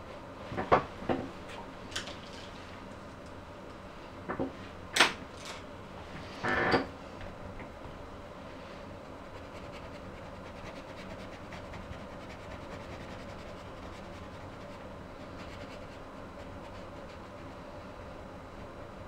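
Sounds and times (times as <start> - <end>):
steady low hum: 0.0 - 19.0
paintbrush scratching on canvas: 9.2 - 17.4.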